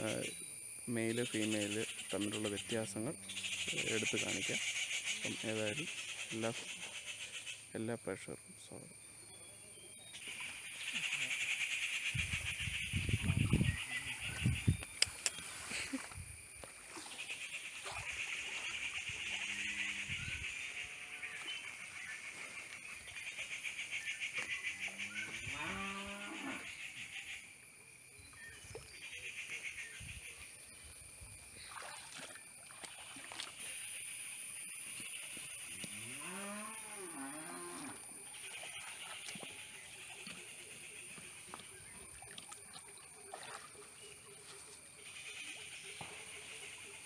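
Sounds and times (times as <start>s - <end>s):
water sloshing and trickling: 15.4s - 19.6s, 31.1s - 33.9s, 38.4s - 44.9s
small splashes: 16.7s - 19.4s, 31.5s - 34.0s, 38.4s - 40.5s, 41.5s - 44.5s.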